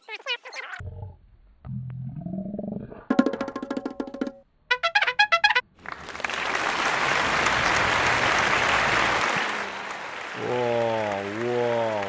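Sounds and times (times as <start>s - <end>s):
brass fanfare: 4.7s - 10.3s
applause: 5.8s - 12.0s
man's wavering voice: 10.4s - 12.0s.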